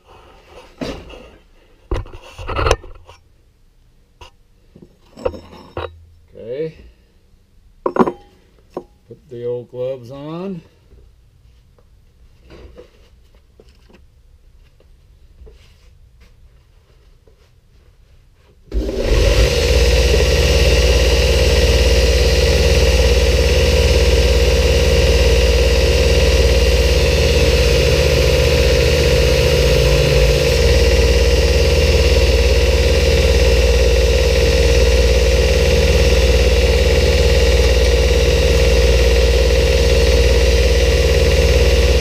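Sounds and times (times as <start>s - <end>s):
belt grinder running: 18.7s - 42.0s.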